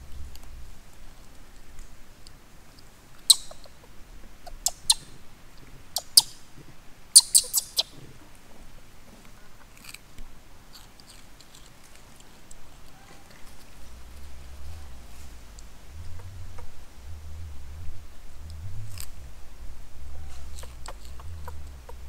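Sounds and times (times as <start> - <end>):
monkey crunching crisp fruit: 10.7 - 17.2, 20.3 - 22.0.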